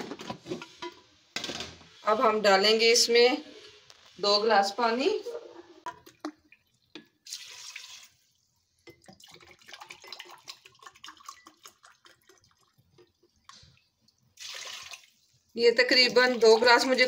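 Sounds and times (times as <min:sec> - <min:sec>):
water pouring into metal pot: 0:05.9 - 0:17.0.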